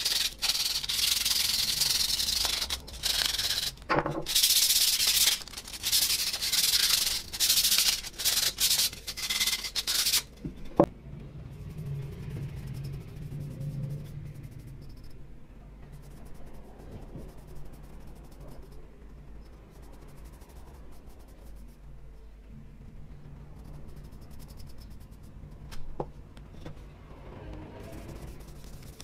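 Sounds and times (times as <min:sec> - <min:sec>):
paintbrush rubbing on wood: 0:00.0 - 0:10.3, 0:27.8 - 0:29.0
steady low hum: 0:00.0 - 0:29.0.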